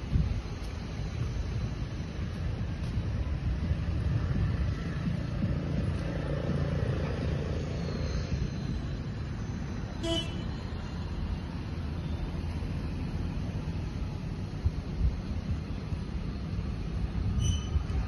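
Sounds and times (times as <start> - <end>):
road traffic rumble: 0.0 - 18.0
vehicle horn toot: 10.0 - 10.5.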